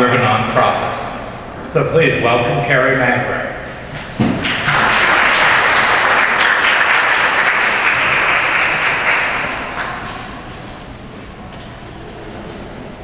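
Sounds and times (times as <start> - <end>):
audience applauding: 4.2 - 10.6.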